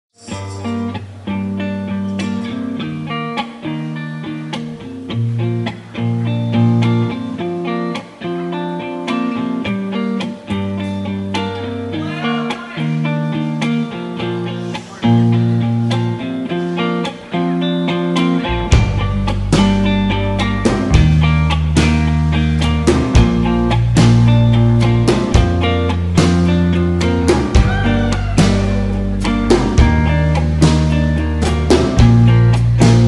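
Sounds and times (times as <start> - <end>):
plucked guitar: 0.2 - 33.0
bass line: 18.4 - 33.0.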